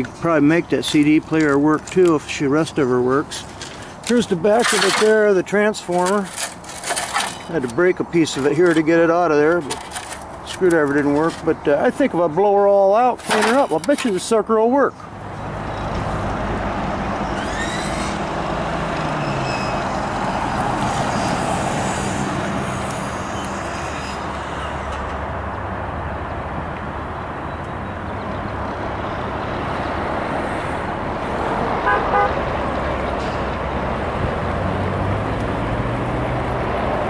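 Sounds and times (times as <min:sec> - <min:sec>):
tyre noise: 0:00.0 - 0:14.4, 0:15.6 - 0:24.8
vehicle engines on a highway: 0:00.0 - 0:37.0.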